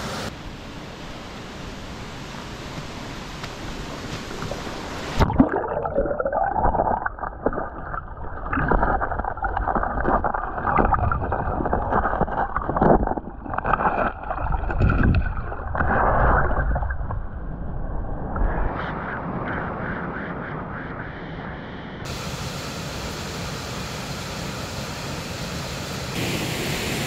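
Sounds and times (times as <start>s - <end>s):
underwater gurgling water: 4.3s - 18.6s
underwater knocks and bumps: 6.6s - 17.3s.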